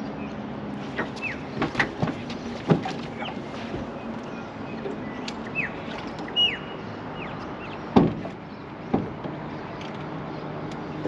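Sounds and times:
birds whistling: 0:01.0 - 0:01.7, 0:02.4 - 0:08.7
knocks: 0:08.0 - 0:08.3.

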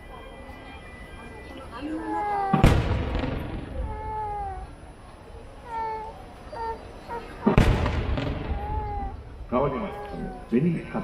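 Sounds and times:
firework shells bursting: 0:07.5 - 0:09.2.

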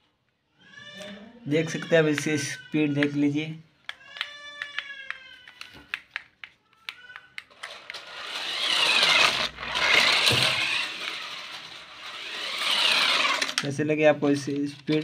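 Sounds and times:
toy tank motors whirring: 0:06.9 - 0:15.0.

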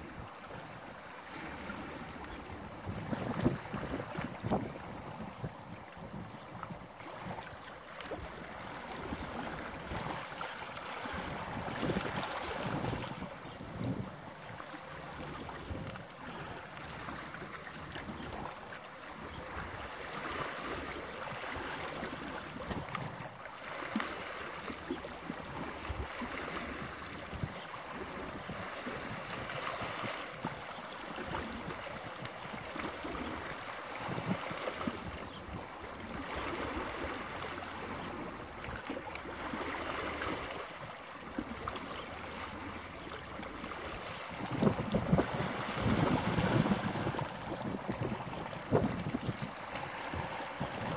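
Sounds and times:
small waves: 0:00.0 - 0:50.9.

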